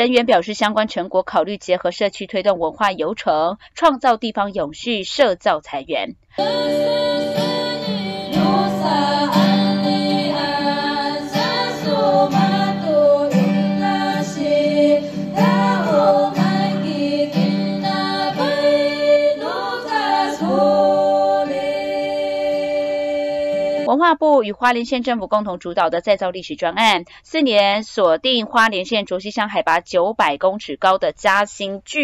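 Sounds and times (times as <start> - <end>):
acoustic guitar strummed and picked: 6.4 - 23.9
women singing together: 6.4 - 23.9.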